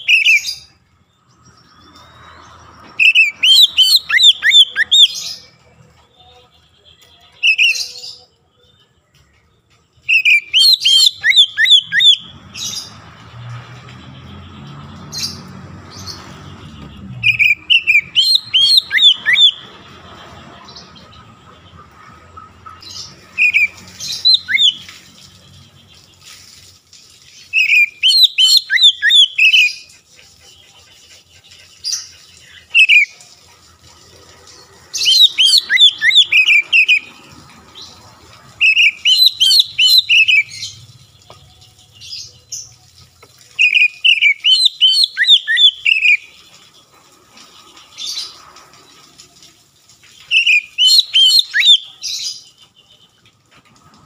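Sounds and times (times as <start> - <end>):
bird singing whistled phrases: 0.0 - 0.7, 3.0 - 5.5, 7.1 - 8.3, 10.1 - 12.3, 17.2 - 19.6, 23.4 - 24.9, 27.5 - 29.8, 32.7 - 33.1, 35.0 - 37.1, 38.6 - 40.7, 43.6 - 46.3, 50.3 - 52.0.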